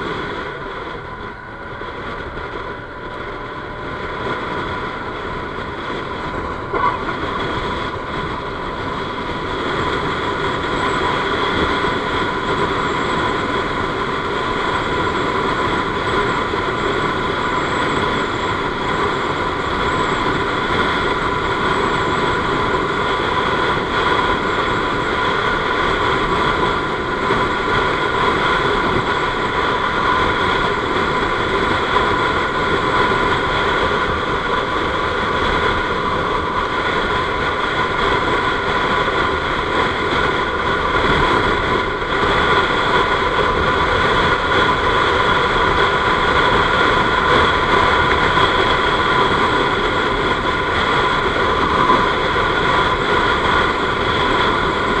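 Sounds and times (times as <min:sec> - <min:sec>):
scooter engine whining: 0:00.0 - 0:55.0
wind rush on microphone: 0:00.0 - 0:55.0.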